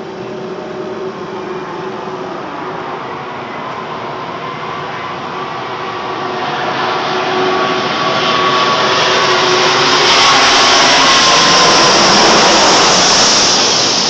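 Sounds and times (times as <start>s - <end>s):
faint engine whine: 0.0s - 14.0s
jet airliner engines roaring: 0.0s - 14.0s.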